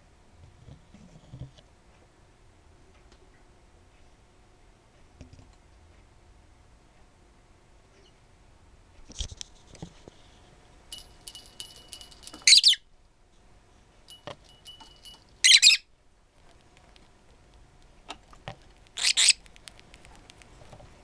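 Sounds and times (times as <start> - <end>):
lovebird harsh quack-like calls: 19.0 - 19.4.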